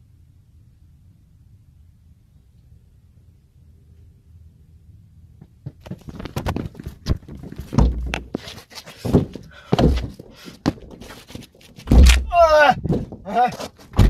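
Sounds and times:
sharp knocks and heavy thuds: 5.6s - 14.0s
rustling and scraping: 5.7s - 14.0s.

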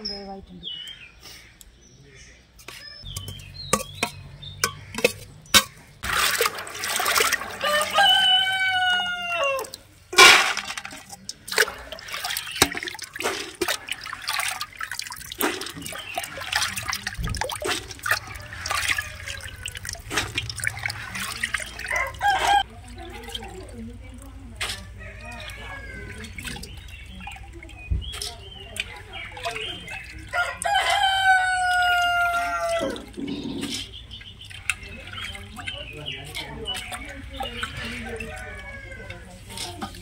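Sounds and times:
water sloshing and splashing: 3.0s - 40.0s
rooster crowing: 7.6s - 9.8s, 21.9s - 22.6s, 30.3s - 33.0s
beans clinking: 10.1s - 13.7s.

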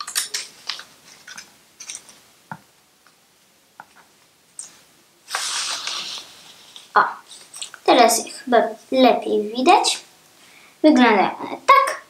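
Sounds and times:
paper rustling: 5.3s - 7.7s.

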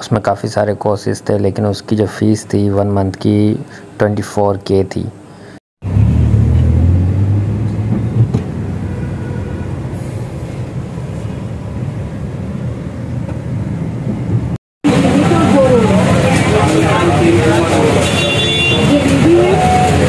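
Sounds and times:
street traffic: 5.4s - 20.0s
car engine rumble: 5.8s - 17.6s.

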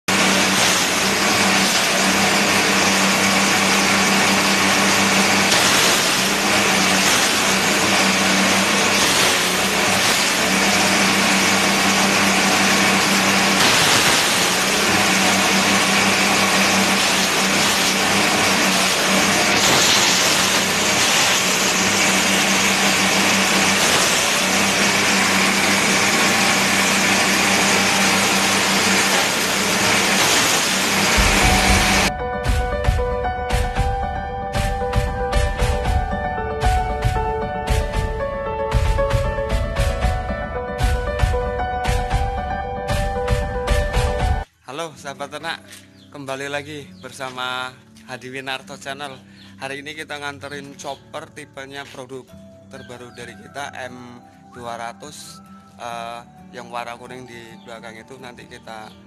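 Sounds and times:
blades cutting stalks: 0.0s - 33.9s, 34.5s - 40.2s
grass chopper engine running: 0.0s - 44.5s.

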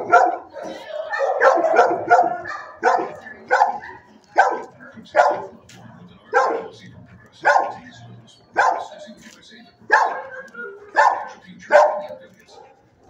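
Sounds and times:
dog barking: 0.0s - 5.6s, 6.3s - 6.8s, 7.4s - 7.9s, 8.5s - 9.0s, 9.9s - 12.8s.

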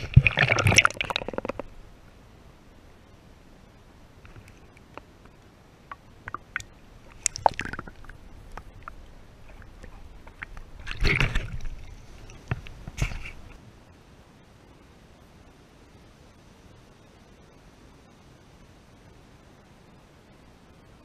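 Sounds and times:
water sloshing and splashing: 0.0s - 1.8s, 6.3s - 13.6s.

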